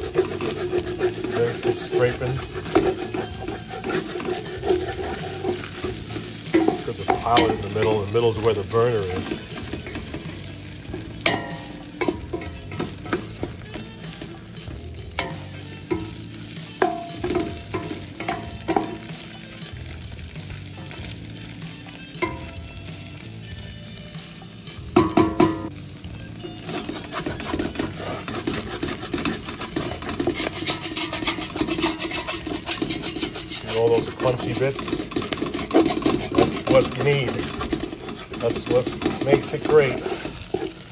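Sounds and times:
wooden spoon scraping a pan: 0:00.0 - 0:22.6, 0:26.4 - 0:40.9
meat sizzling in a pan: 0:00.0 - 0:40.9.

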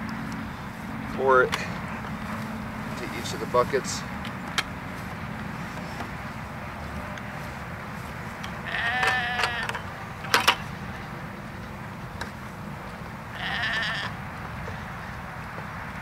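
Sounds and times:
sheep bleating: 0:08.6 - 0:10.1, 0:13.3 - 0:14.2.

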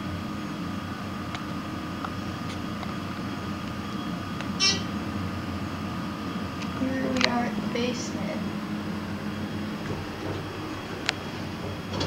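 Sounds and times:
elevator low rumble: 0:00.0 - 0:12.0
faint steady whine: 0:00.0 - 0:12.0
high-pitched chirp: 0:04.6 - 0:04.9.

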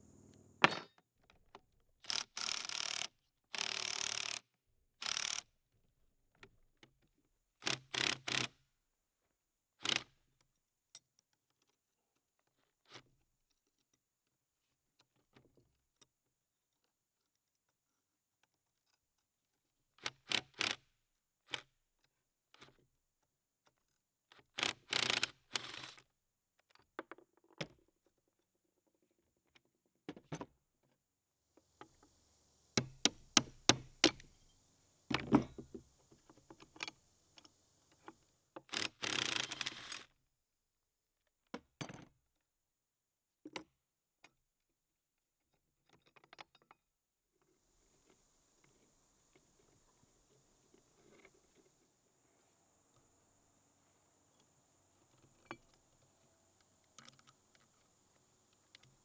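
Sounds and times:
wrench clinking and scraping on metal: 0:36.6 - 0:40.1.

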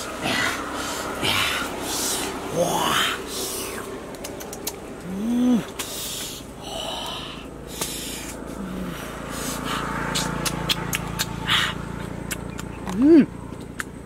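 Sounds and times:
man humming exclamation: 0:01.2 - 0:03.8, 0:05.0 - 0:05.8, 0:08.6 - 0:09.8
breathy puffs and sniffs: 0:05.2 - 0:10.5
fruit peeling clicks: 0:12.2 - 0:14.0.

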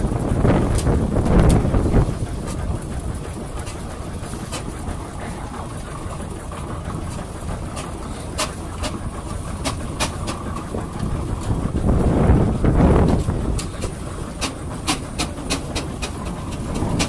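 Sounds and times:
steam engine low rumble: 0:00.0 - 0:17.0
sharp metallic clicks and knocks: 0:07.1 - 0:11.6, 0:13.0 - 0:17.0.

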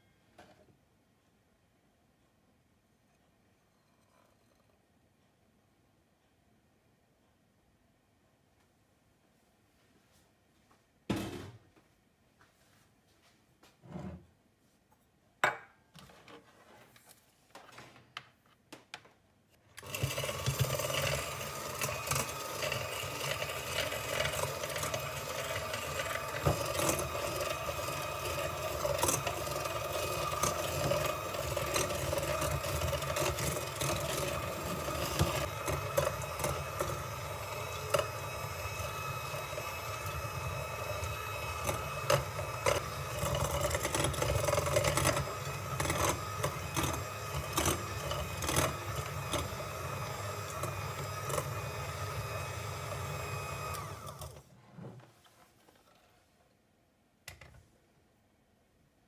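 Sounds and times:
electric hand mixer running: 0:19.8 - 0:54.4.

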